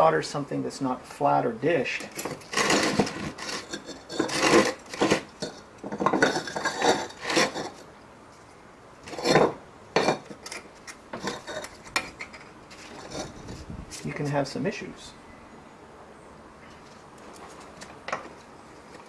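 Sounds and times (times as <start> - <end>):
wooden blocks clattering on bench: 2.2 - 7.8.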